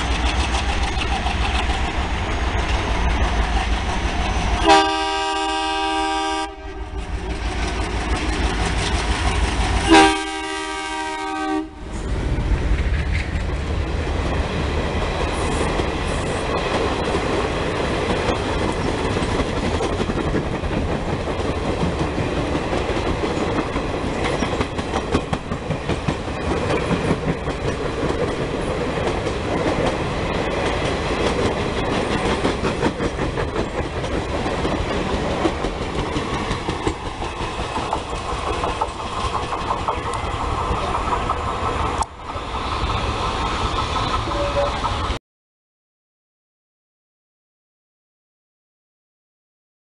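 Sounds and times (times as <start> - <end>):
train passing with rumble: 0.0 - 45.2
locomotive horn: 4.6 - 7.1, 9.8 - 12.0, 44.2 - 44.9
wheel clatter over rail joints: 7.3 - 9.8, 12.5 - 45.2.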